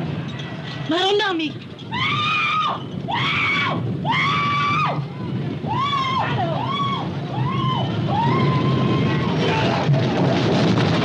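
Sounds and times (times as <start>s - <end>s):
low rumbling noise: 0.0s - 11.0s
people screaming and wailing: 1.9s - 10.4s.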